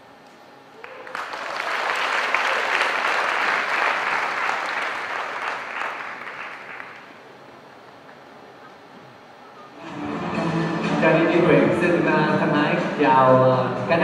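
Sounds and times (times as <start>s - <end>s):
audience applauding: 0.7s - 7.3s.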